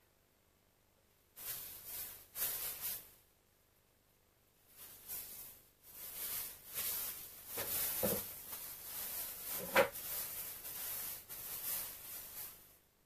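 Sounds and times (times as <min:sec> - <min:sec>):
faint rustling: 0:04.7 - 0:12.8.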